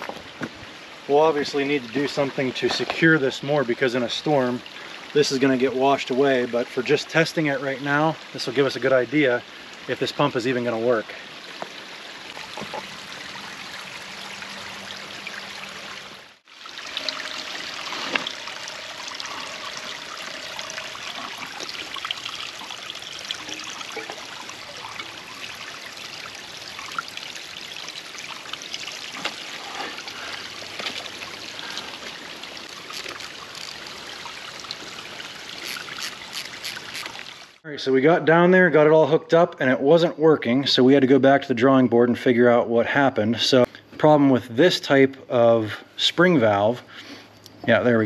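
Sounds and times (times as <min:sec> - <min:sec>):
creek water flowing over rocks: 0:00.0 - 0:37.6.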